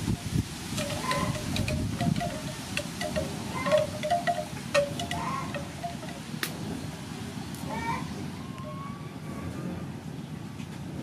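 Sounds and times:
wind noise on microphone: 0:00.0 - 0:08.0.

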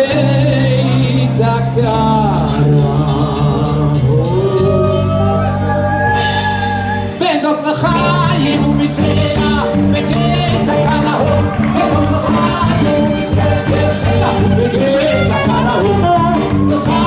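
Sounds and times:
drums: 0:00.0 - 0:17.0
electric bass: 0:00.0 - 0:17.0
man singing: 0:00.0 - 0:17.0
saxophone: 0:09.6 - 0:17.0.

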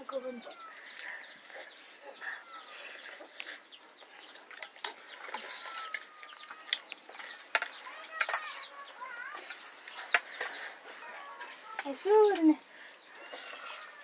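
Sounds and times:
chickens and birds chirping: 0:00.0 - 0:14.0
spoons clinking steel bowls: 0:05.2 - 0:10.7, 0:13.2 - 0:14.0.

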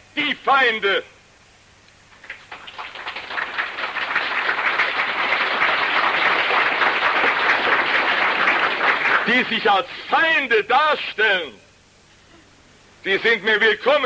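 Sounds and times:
audience applauding: 0:02.1 - 0:09.6.

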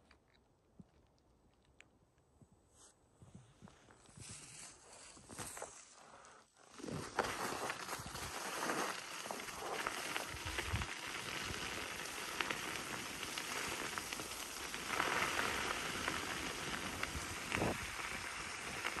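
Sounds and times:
tyre rolling on gritty road: 0:06.7 - 0:19.0.

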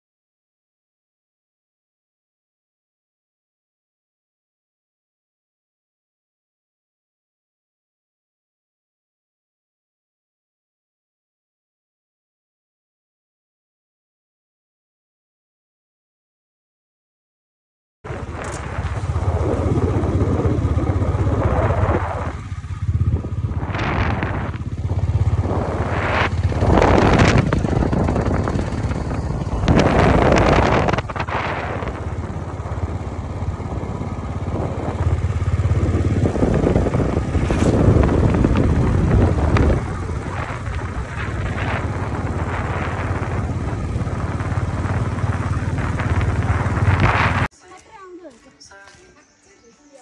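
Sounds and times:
rushes of noise: 0:18.1 - 0:47.5
motorcycle engine running: 0:18.1 - 0:48.3.

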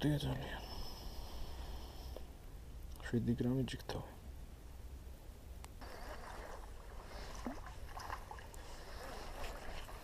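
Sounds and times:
low steady rumble: 0:00.0 - 0:10.0
faint rustling of tackle: 0:05.8 - 0:10.0.

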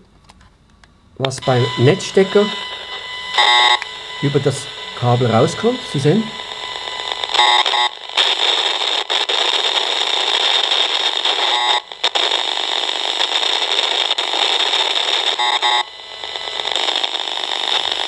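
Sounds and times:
meter loudspeaker hiss and crackle: 0:00.0 - 0:18.0.

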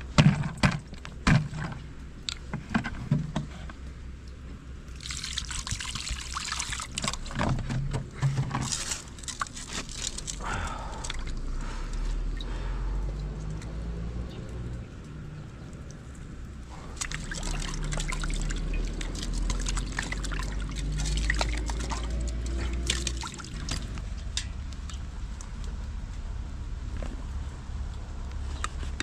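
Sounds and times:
plastic jug clicks and crinkles: 0:00.0 - 0:03.9, 0:05.0 - 0:11.4, 0:16.8 - 0:25.7
water sloshing: 0:00.0 - 0:25.4
water pouring into frying pan: 0:16.9 - 0:23.8.

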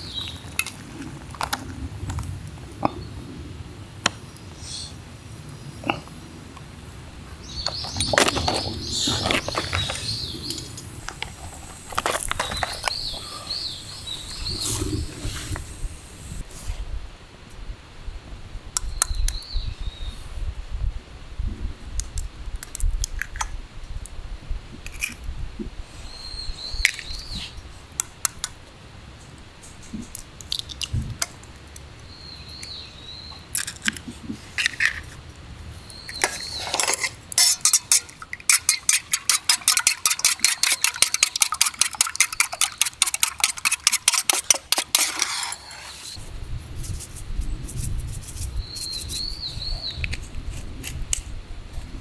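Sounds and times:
fast clicking strokes: 0:37.4 - 0:46.2
bird chirps: 0:48.6 - 0:50.1.

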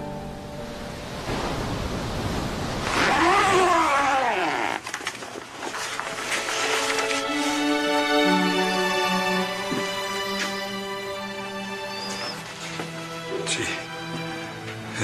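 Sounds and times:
surf-like wash of noise: 0:00.3 - 0:04.2.

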